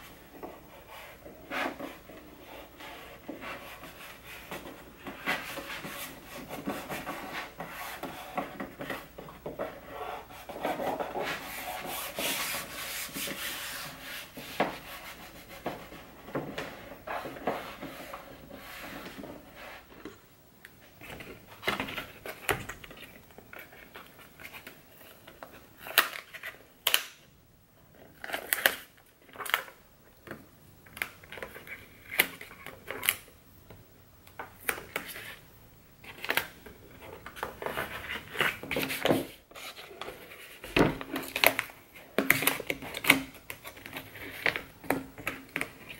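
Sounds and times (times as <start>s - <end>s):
hands rubbing vinyl film: 0.0s - 20.0s.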